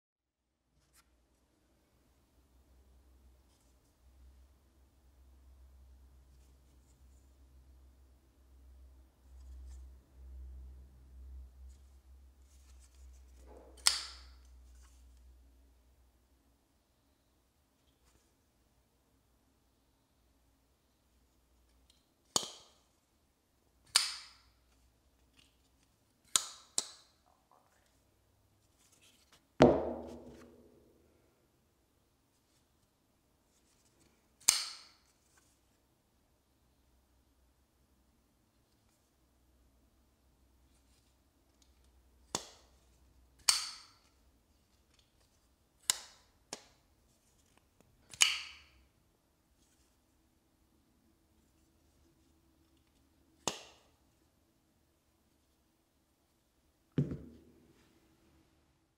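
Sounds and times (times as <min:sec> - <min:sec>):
folding knife clicking open and shut: 0:13.8 - 0:14.4, 0:23.9 - 0:24.4, 0:34.4 - 0:35.0, 0:43.4 - 0:44.1, 0:48.1 - 0:48.7.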